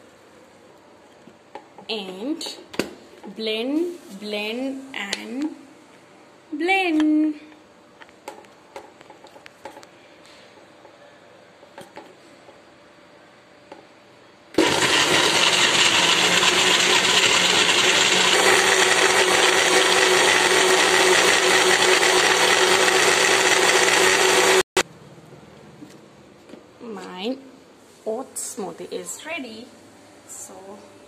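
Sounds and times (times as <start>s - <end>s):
electric blender running: 14.6s - 24.8s.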